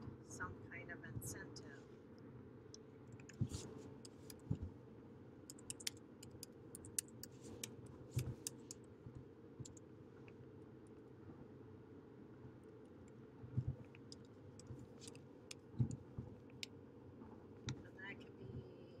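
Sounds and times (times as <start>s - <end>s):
computer keyboard typing: 3.1s - 4.5s, 5.5s - 8.8s, 13.8s - 16.7s.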